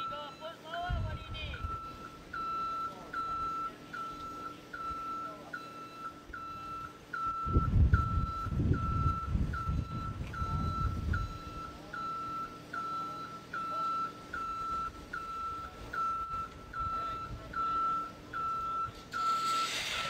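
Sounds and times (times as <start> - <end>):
back-up alarm beeping: 0.0 - 20.0.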